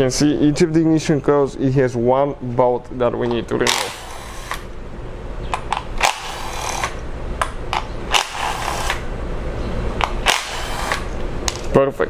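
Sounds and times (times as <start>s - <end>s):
power ratchet running: 3.7s - 4.7s, 5.9s - 7.0s, 8.1s - 9.1s, 10.0s - 11.2s.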